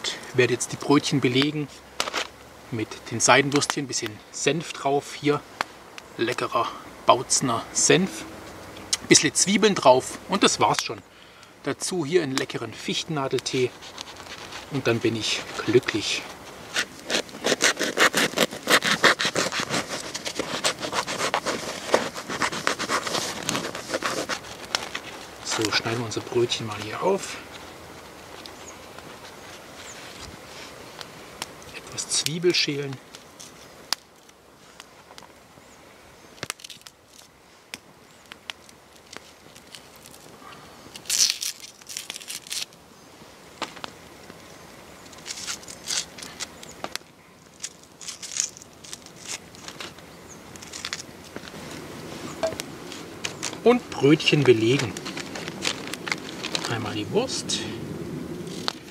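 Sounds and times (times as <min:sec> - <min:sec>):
campfire crackling pops: 0:00.2 - 0:04.8, 0:05.5 - 0:06.5, 0:12.2 - 0:35.6, 0:36.3 - 0:42.8, 0:43.5 - 0:57.5
onion skin crinkling and tearing: 0:12.4 - 0:29.4, 0:36.4 - 0:42.8, 0:45.0 - 0:57.0
knife sawing through bread crust: 0:17.1 - 0:24.5.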